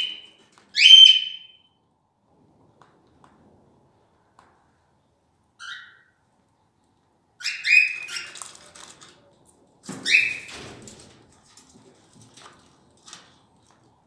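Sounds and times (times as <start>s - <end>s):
cockatiels chirping and squawking: 7.4s - 8.4s.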